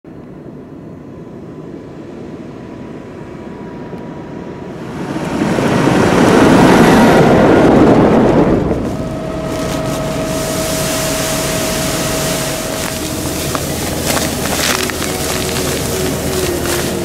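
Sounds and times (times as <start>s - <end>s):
tractor engine: 4.7s - 17.0s
tyres on gravel: 8.8s - 17.0s.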